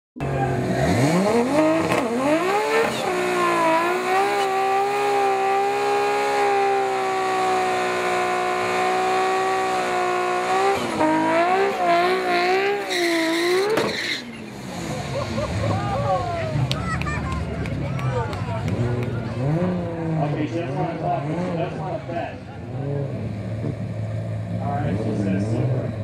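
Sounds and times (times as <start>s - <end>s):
car engine revving hard: 0.2s - 16.6s, 18.4s - 26.0s
tyres spinning and squealing: 9.4s - 17.5s.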